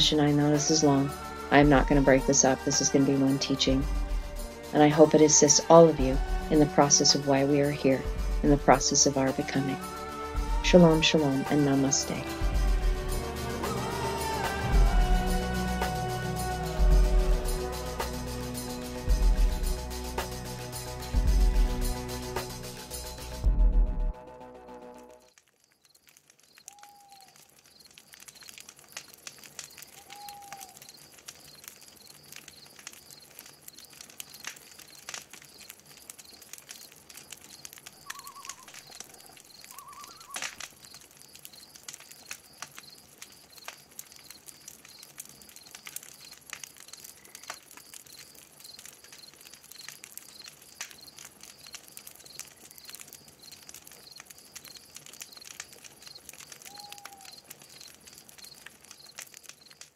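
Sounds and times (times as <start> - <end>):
faint clicks: 25.3 - 59.9
bird calls: 26.6 - 27.4, 29.9 - 30.8, 38.0 - 40.5, 56.6 - 57.5
bird trills: 38.0 - 38.8, 39.6 - 40.4.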